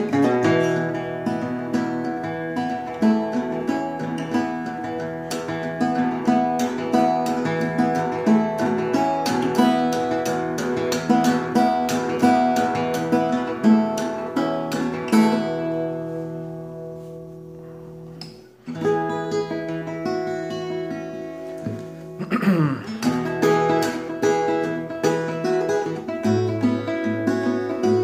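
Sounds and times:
acoustic guitar picking and strumming: 0.0s - 28.0s.

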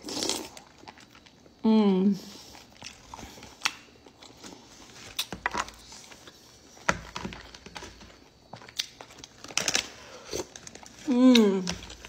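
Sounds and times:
chewing and slurping: 2.3s - 6.8s.

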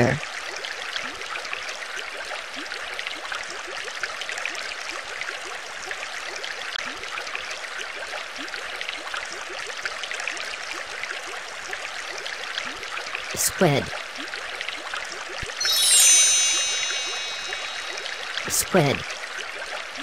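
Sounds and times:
water bubbling and trickling: 15.4s - 19.0s.

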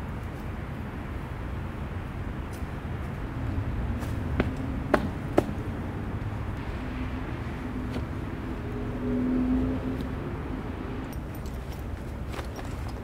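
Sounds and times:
low outdoor rumble: 0.0s - 13.0s
passing car hum: 2.9s - 11.4s.

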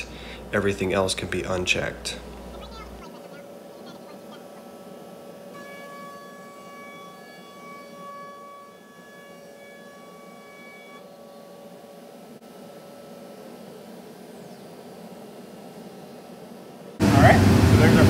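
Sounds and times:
machine whine: 0.0s - 18.0s
steady hiss: 0.0s - 18.0s.

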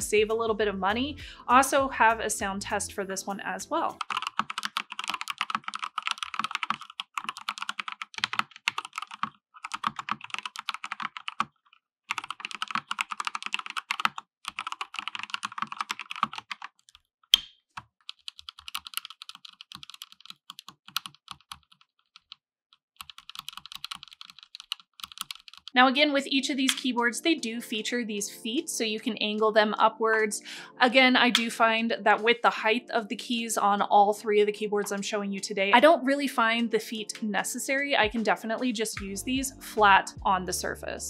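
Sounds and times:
mechanical keyboard typing: 4.0s - 17.0s, 18.0s - 22.4s, 23.0s - 25.8s.

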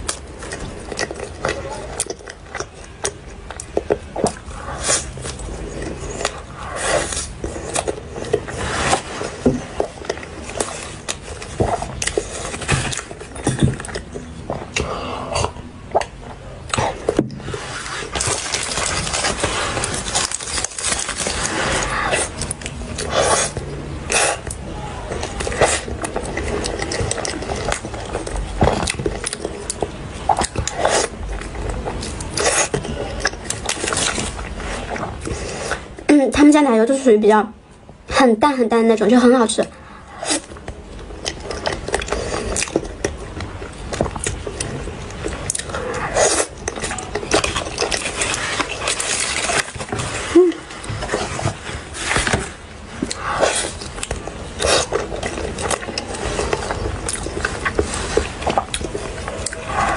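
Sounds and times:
paper rustling: 17.4s - 22.4s
chewing and wet mouth clicks: 40.2s - 49.9s, 53.0s - 59.9s.

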